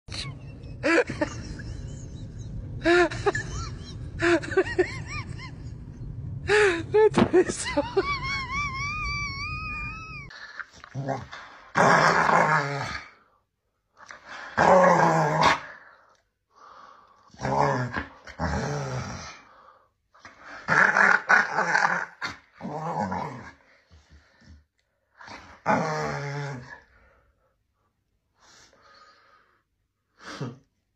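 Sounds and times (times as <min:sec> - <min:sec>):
dog whining howls: 0:08.4 - 0:10.3
dog growling in play: 0:10.9 - 0:13.2, 0:17.4 - 0:19.4, 0:20.5 - 0:23.6, 0:25.2 - 0:26.9.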